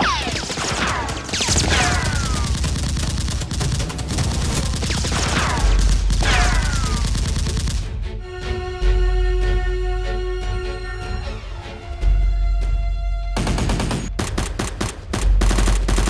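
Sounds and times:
gunfire bursts: 0.0 - 8.0, 13.4 - 16.0.

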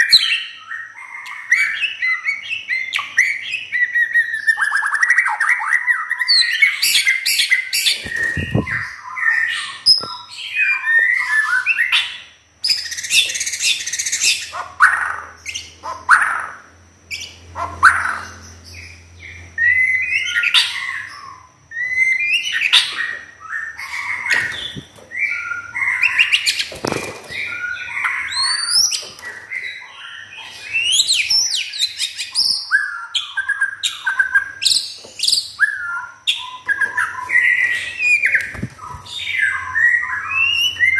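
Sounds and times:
songbird singing: 0.0 - 40.9.

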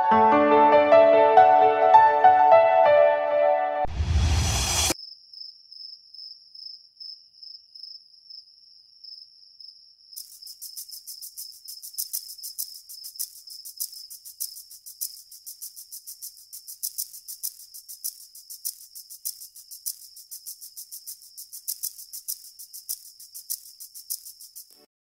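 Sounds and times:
fast pulsing cricket chirp: 4.9 - 24.9
crickets trilling: 5.0 - 24.9.

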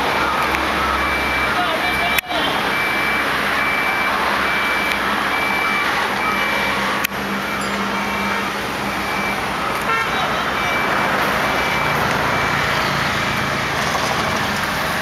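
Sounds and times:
vehicle warning beeper: 0.0 - 13.9
moving vehicle road noise: 0.0 - 15.0.

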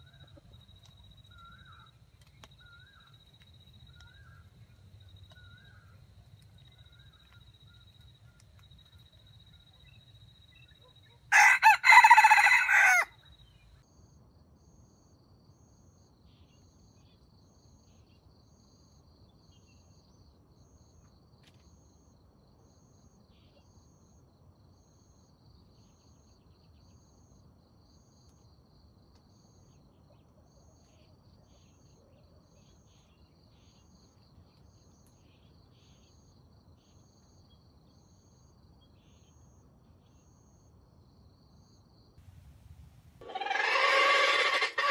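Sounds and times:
insects chirring: 0.0 - 13.7, 41.7 - 44.9
rooster crowing: 11.3 - 13.2, 43.2 - 44.9.

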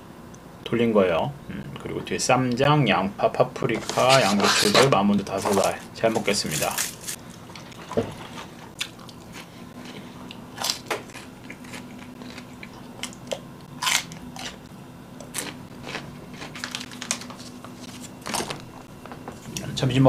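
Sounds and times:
person biting and chewing food: 6.4 - 18.6.

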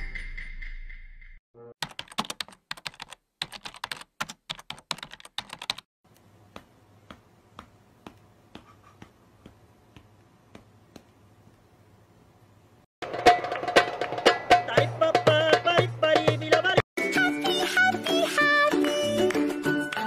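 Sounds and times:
rapid typing on keyboard: 1.8 - 5.9.

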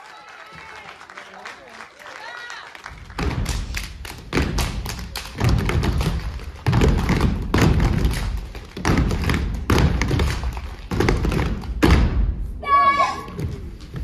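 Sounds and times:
clapping: 0.0 - 7.2
boots stomping on stage floor: 3.2 - 12.3.

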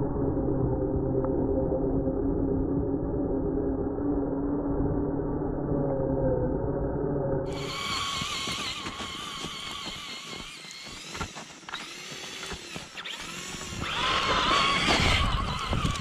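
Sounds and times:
electric motor whining: 7.5 - 16.0.

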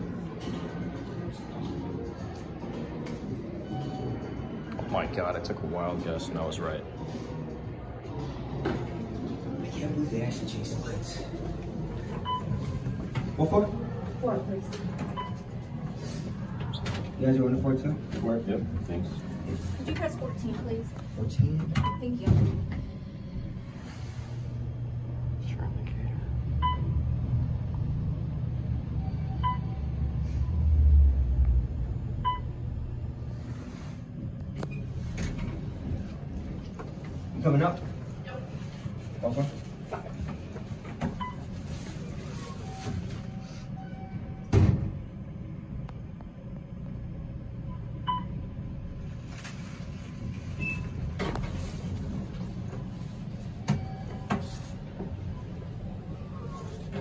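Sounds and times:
elevator low rumble: 0.0 - 57.0.

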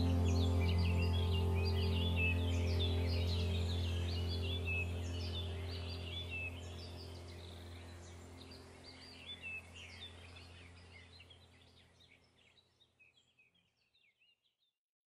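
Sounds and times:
low steady drone: 0.0 - 11.7
birds chirping: 0.0 - 14.4.

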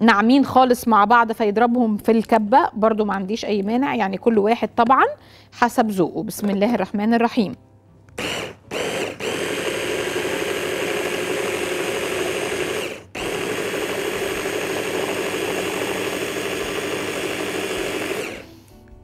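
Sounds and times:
electric food chopper running: 8.2 - 18.5.

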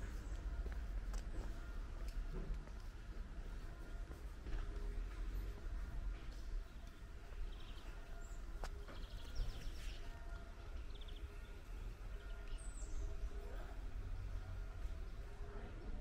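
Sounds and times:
low outdoor rumble: 0.0 - 16.0
small birds chirping: 5.7 - 15.6.

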